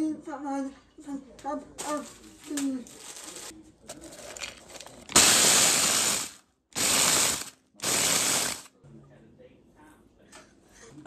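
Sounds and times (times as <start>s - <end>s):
quiet handling sounds: 1.3s - 5.1s
food chopper grinding: 5.1s - 8.7s.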